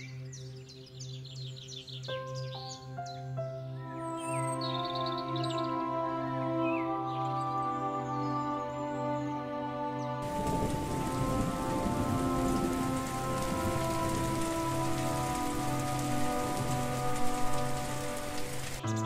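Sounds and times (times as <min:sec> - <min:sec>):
soft music with long notes: 0:00.0 - 0:19.0
steady rain falling: 0:10.2 - 0:19.0.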